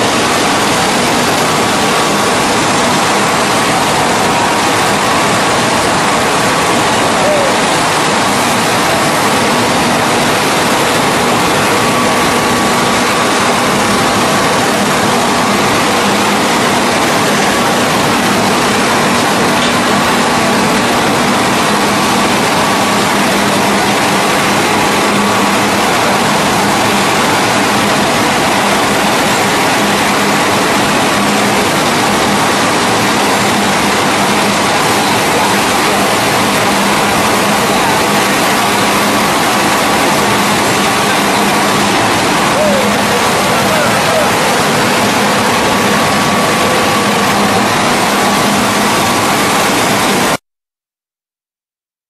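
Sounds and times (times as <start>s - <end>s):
steady machine hum: 0.0s - 50.4s
veneer lathe mechanical rush: 0.0s - 50.4s.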